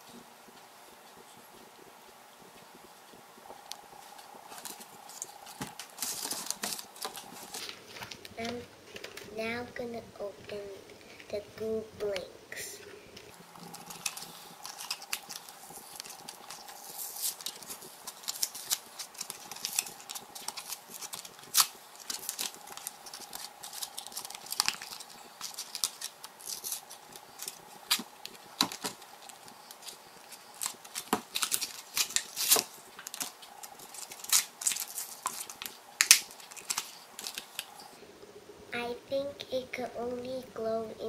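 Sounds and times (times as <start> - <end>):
plastic packaging crackling: 3.5 - 9.4, 13.3 - 38.0.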